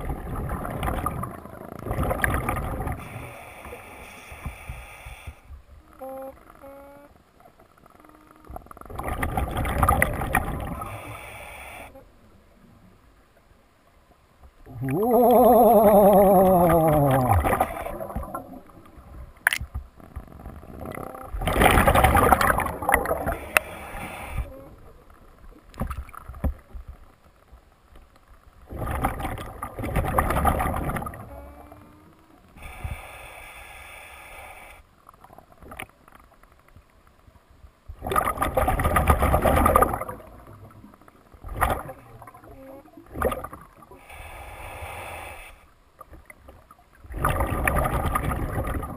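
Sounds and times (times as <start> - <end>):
exhaled bubbles hissing underwater: 14.7 - 18.8, 21.4 - 24.8.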